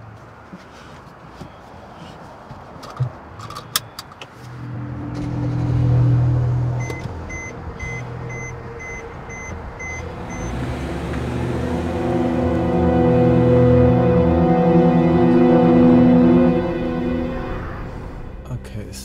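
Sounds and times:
dashboard warning chime beeping: 0:03.8 - 0:13.0
car engine running: 0:04.4 - 0:18.3
low music drone: 0:04.4 - 0:19.0.

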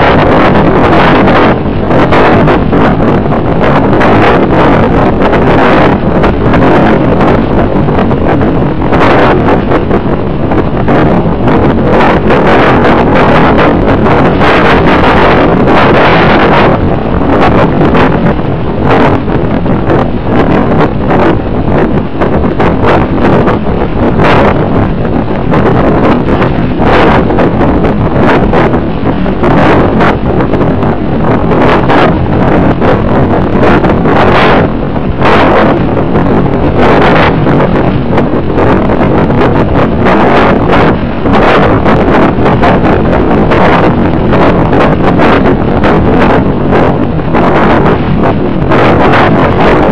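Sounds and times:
wind buffeting microphone: 0:00.0 - 0:49.9.

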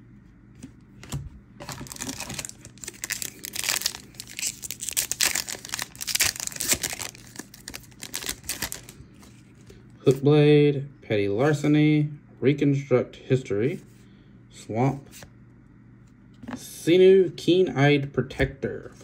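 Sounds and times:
foil wrapper tearing and crinkling: 0:01.6 - 0:09.0.

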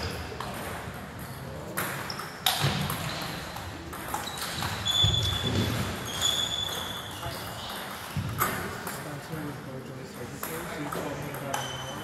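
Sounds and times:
short high squeaks: 0:04.2 - 0:07.6.

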